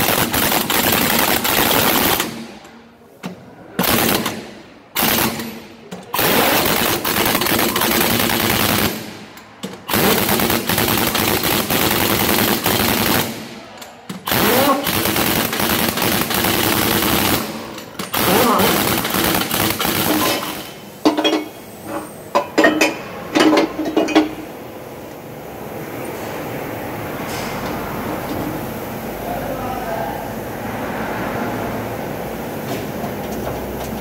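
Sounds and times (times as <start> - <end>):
pneumatic impact wrench rattling: 0.0 - 2.7, 3.8 - 24.5.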